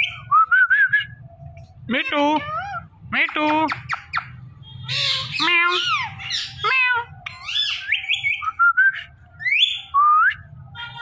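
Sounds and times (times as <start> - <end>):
parakeet squawking and whistling: 0.0 - 0.3, 1.9 - 11.0.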